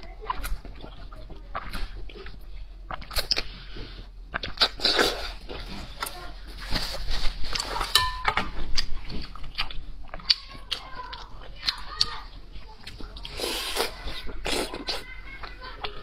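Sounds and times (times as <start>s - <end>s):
person chewing and crunching food: 0.0s - 16.0s
wet mouth clicks: 4.3s - 5.4s.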